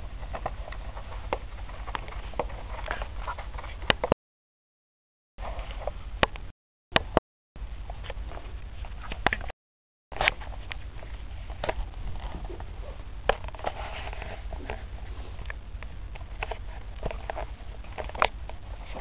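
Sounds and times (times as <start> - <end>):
hamster gnawing cardboard: 0.1 - 4.1.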